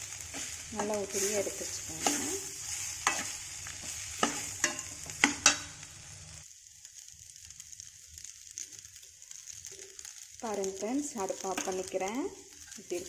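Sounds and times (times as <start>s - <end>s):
metal spatula scraping a pan: 0.0s - 5.9s
faint steady sizzle: 0.0s - 13.0s.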